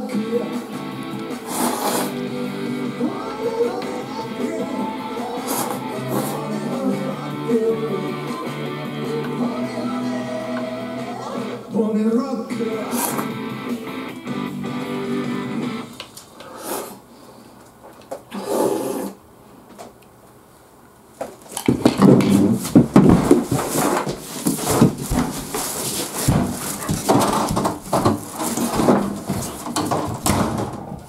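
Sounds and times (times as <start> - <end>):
slurp from a bowl: 1.4 - 2.2, 18.3 - 19.2
footsteps: 21.2 - 31.0
clothing rustling: 21.4 - 31.0
knocks and thuds: 21.7 - 31.0.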